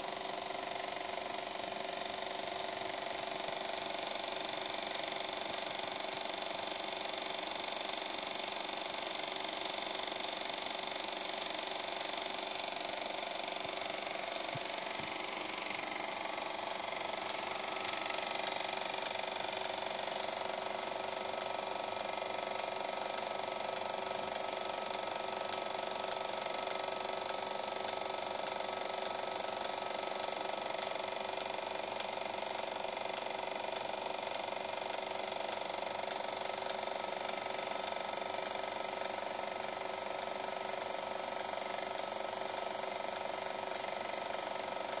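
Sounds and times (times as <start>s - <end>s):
projector motor hum: 0.0s - 45.0s
film advance clatter: 11.3s - 21.5s.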